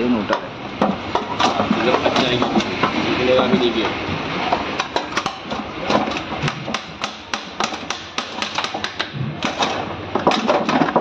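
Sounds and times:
tools clicking and knocking on metal: 0.3 - 3.0, 3.8 - 11.0.

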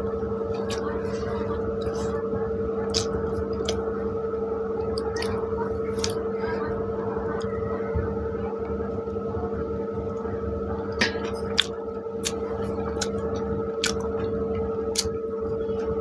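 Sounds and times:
steady hum: 0.0 - 16.0
person chewing with wet smacks: 11.4 - 13.2, 13.8 - 14.2.

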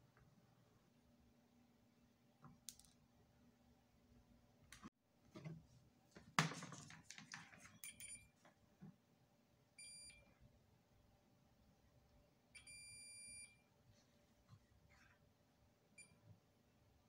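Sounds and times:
multimeter continuity beep: 9.8 - 10.3, 12.6 - 13.7.

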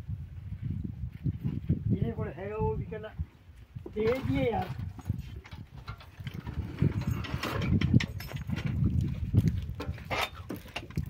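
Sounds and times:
knocks and clatter of cart shafts: 3.9 - 11.0.

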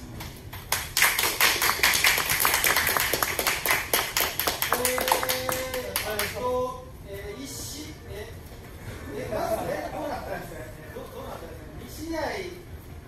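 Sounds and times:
group of people clapping: 0.1 - 6.4.

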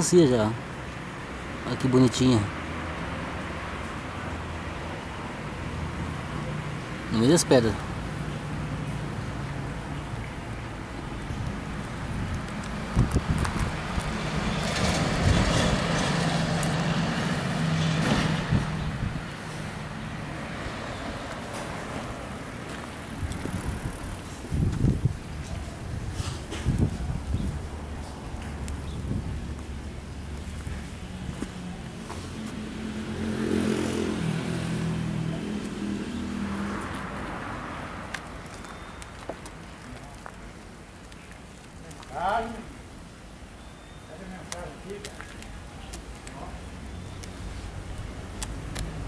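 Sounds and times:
vehicle engine passing: 11.3 - 25.2, 25.8 - 38.2.

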